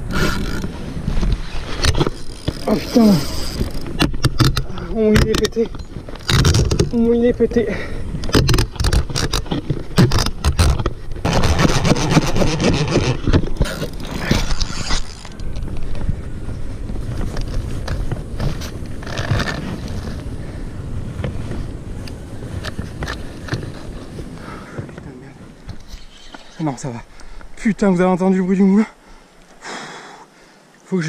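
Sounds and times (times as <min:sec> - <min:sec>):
fishing reel grinding and clicking: 0:01.9 - 0:04.6, 0:12.1 - 0:15.6.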